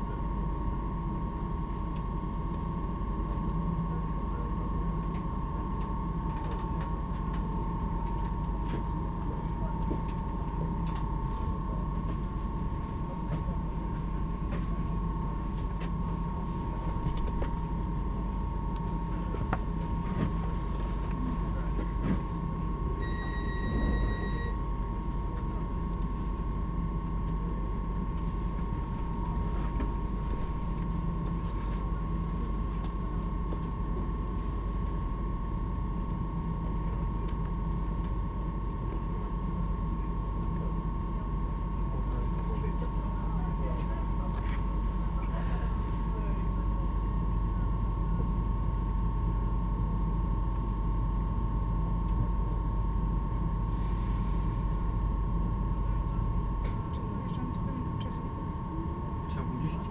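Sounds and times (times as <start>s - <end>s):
single beep: 23.0s - 24.6s.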